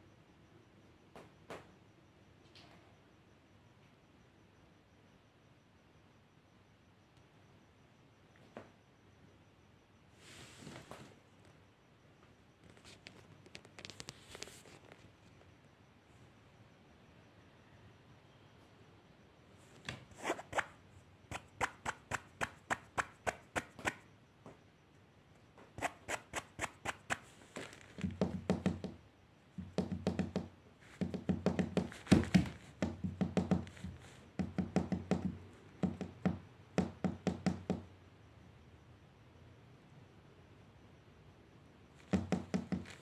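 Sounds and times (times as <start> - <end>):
cat making rhythmic clicks: 21.3 - 24.0, 25.8 - 27.2.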